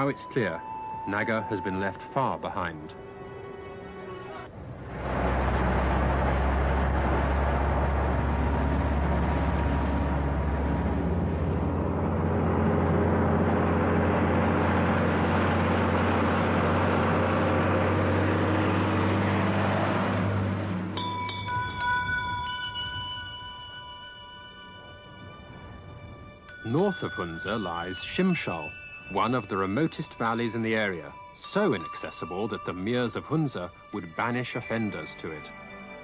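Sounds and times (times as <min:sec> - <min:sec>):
vehicle engine running: 0:04.6 - 0:21.8.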